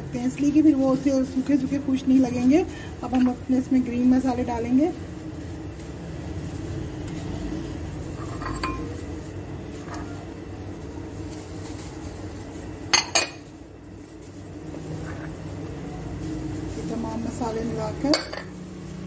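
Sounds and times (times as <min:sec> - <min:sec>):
bowls clinking against steel pan: 0:08.2 - 0:09.0, 0:12.8 - 0:13.6, 0:18.0 - 0:18.7.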